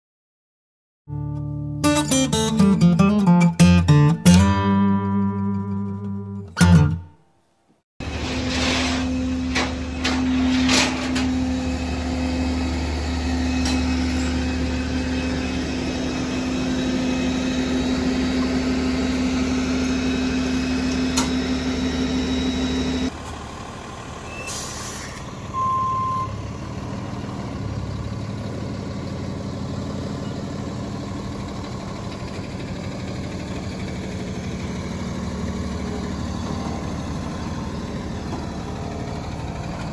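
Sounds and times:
truck engine whining: 0:01.1 - 0:07.1, 0:08.0 - 0:39.9
guitar music: 0:01.1 - 0:07.2
short beep: 0:25.5 - 0:26.4.

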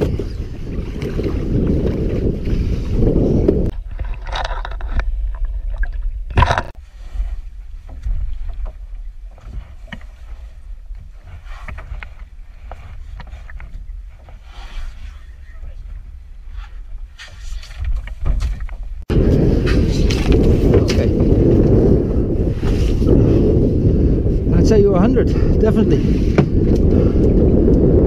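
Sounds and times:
knocks and clicks against hull: 0:00.0 - 0:14.4, 0:17.2 - 0:19.0, 0:26.3 - 0:27.9
wind buffeting microphone: 0:00.0 - 0:28.0.

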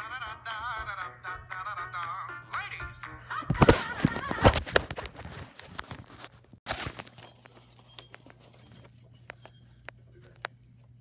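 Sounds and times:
phone handling rustle: 0:03.5 - 0:10.6.

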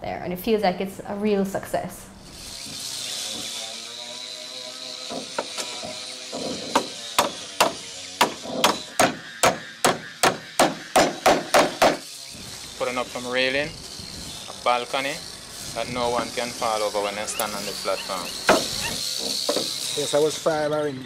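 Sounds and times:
hammer striking wooden post: 0:05.1 - 0:12.0, 0:18.4 - 0:19.8.

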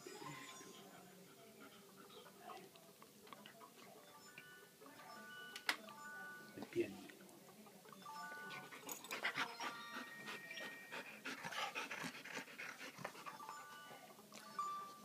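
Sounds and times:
dog panting: 0:00.8 - 0:03.7, 0:08.4 - 0:14.0.

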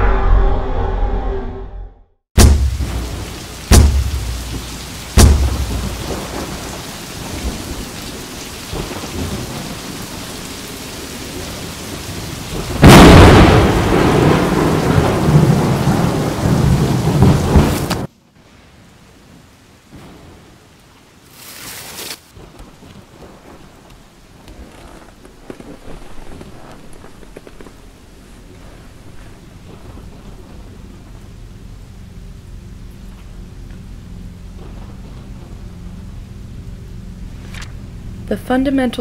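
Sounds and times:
thunder rumble: 0:00.0 - 0:18.1, 0:22.4 - 0:39.0
heavy echoing knocks: 0:02.4 - 0:06.0
steady rain: 0:02.4 - 0:39.0.

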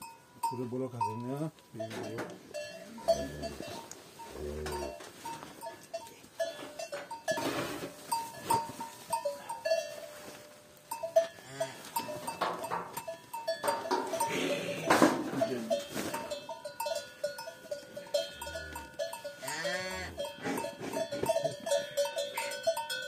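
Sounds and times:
cattle low calls: 0:02.8 - 0:05.1, 0:14.1 - 0:15.8, 0:18.1 - 0:22.7.

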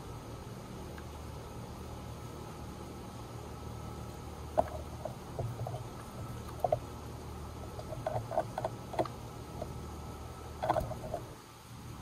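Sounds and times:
steady low hum: 0:00.0 - 0:12.0
birds pecking at feeder: 0:04.0 - 0:11.4.

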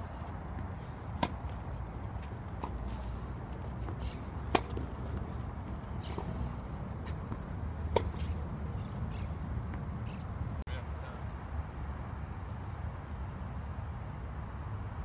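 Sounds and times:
racket hitting tennis ball: 0:00.0 - 0:10.3
low outdoor rumble: 0:00.0 - 0:15.0.

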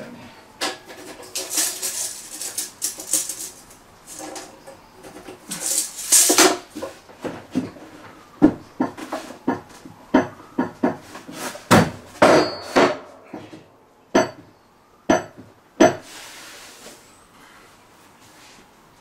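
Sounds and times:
wooden boards knocking: 0:08.4 - 0:11.1.

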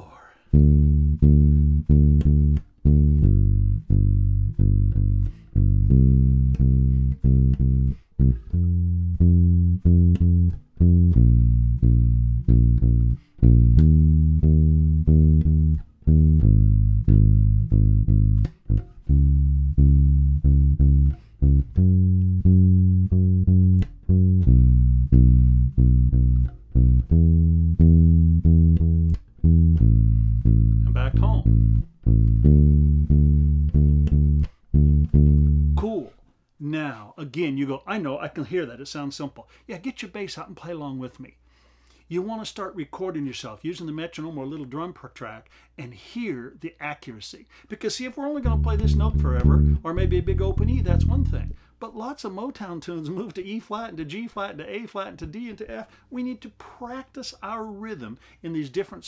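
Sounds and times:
plucked electric bass: 0:00.5 - 0:35.9, 0:48.4 - 0:51.6.

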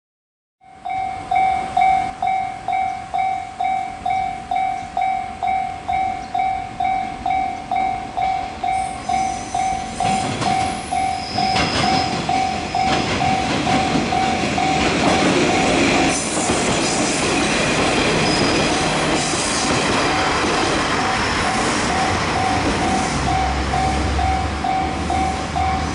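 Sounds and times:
level-crossing bell ringing: 0:00.6 - 0:16.2, 0:20.0 - 0:25.9
diesel railcar engine and wheels: 0:00.6 - 0:25.9
wheels clicking over rail joints: 0:09.8 - 0:24.7.

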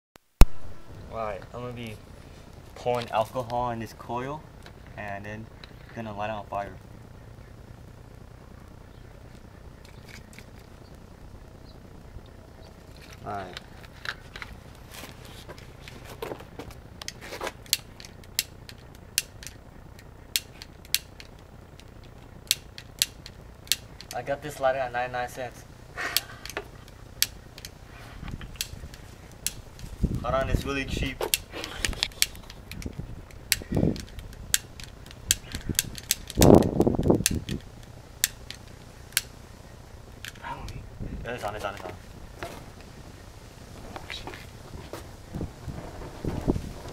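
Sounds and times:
muffled burst of noise: 0:00.4 - 0:15.8
rustling handling noise: 0:12.8 - 0:19.6
lighter igniter clicking: 0:17.0 - 0:24.2.

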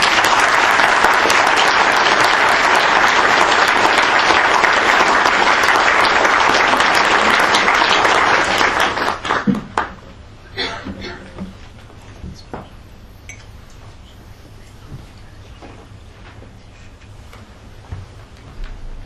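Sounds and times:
audience applauding: 0:00.0 - 0:10.1.

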